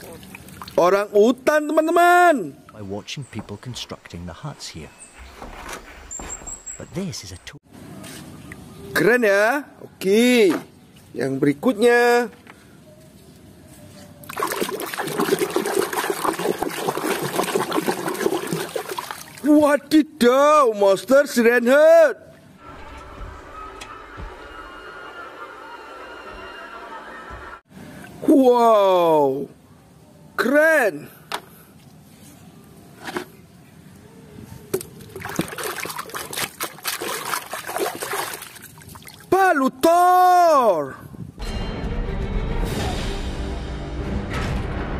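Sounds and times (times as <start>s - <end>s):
water sloshing and splashing: 0.0s - 0.8s, 14.2s - 19.5s, 34.7s - 39.3s.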